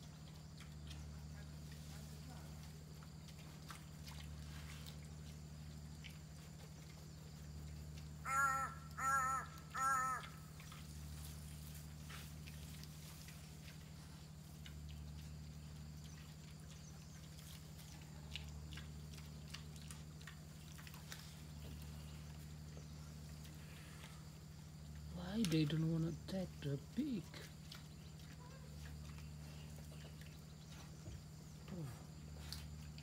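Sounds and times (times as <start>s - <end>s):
steady low hum: 0.0s - 33.0s
animal harsh calls: 8.2s - 10.6s.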